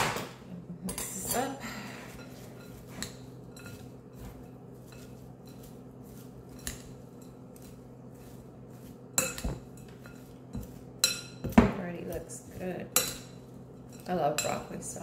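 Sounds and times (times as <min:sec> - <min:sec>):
steady low hum: 0:00.0 - 0:15.0
utensil scraping and clinking bowl: 0:00.9 - 0:15.0.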